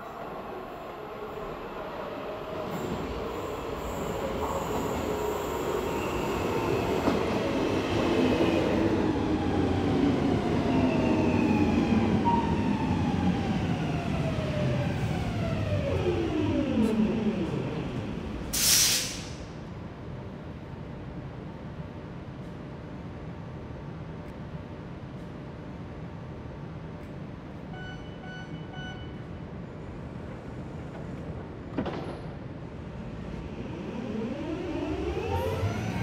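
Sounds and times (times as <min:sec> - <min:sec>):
metro train braking: 0:00.0 - 0:19.6, 0:33.0 - 0:36.0
air hiss: 0:18.5 - 0:19.5.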